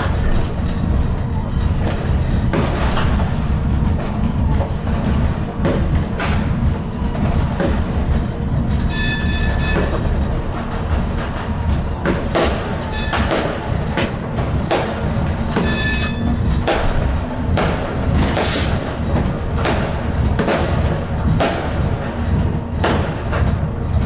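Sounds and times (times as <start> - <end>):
light-rail car rumbling: 0.0 - 24.0
fireworks and firecrackers banging: 8.9 - 23.4.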